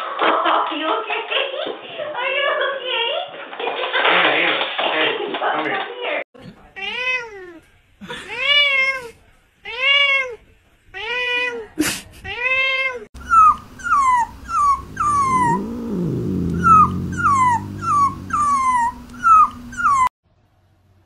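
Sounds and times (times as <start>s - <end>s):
cat meowing: 12.4s - 20.1s
puppy whimpering: 13.2s - 20.1s
low drawn-out growl: 13.8s - 20.1s.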